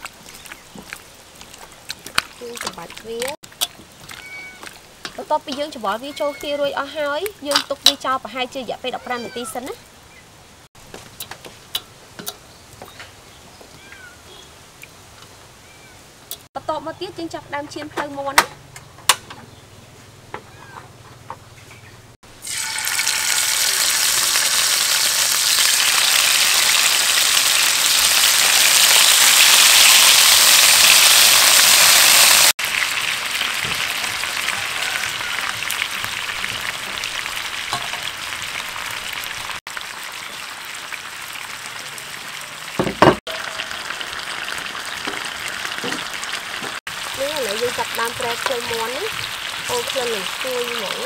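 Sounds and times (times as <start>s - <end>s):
metal tongs turning food: 0.0s - 8.1s, 11.2s - 12.4s
chicken sizzling in hot oil: 22.3s - 51.0s
knock: 42.8s - 43.2s.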